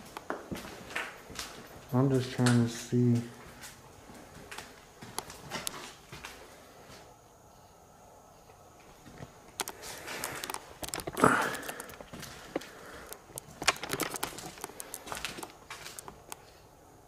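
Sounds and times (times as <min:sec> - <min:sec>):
debris crunching and clattering: 0:13.4 - 0:16.2.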